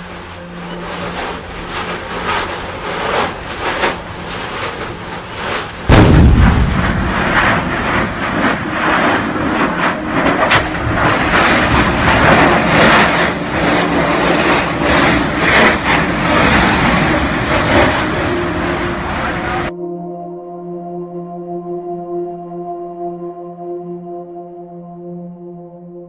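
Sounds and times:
volcano rumbling roar: 0.0 - 19.7
sharp crack: 2.1 - 19.7
lava spattering bursts: 4.4 - 19.7.

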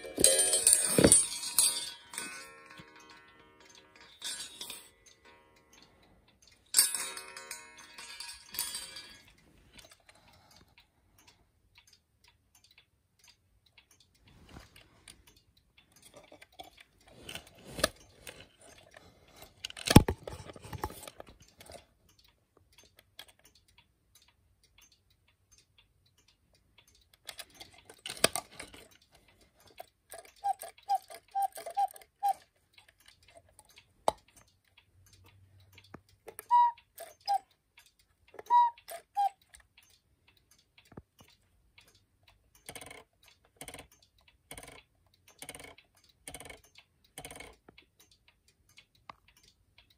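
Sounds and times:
clock mechanism clicks and knock: 0.0 - 49.9
clock ticking: 0.0 - 49.9
two-note cuckoo calls: 30.4 - 32.5, 36.4 - 37.5, 38.4 - 39.4
short whistle pips: 36.4 - 37.4.

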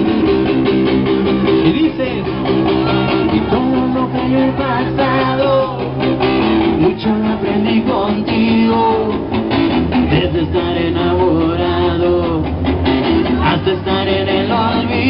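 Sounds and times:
electric bass and guitar: 0.0 - 15.0
person singing: 2.8 - 6.0, 10.0 - 15.0.

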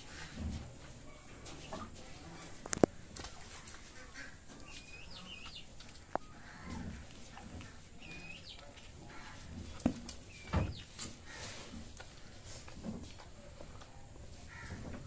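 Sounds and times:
birds chirping: 3.9 - 9.6, 10.2 - 11.5.

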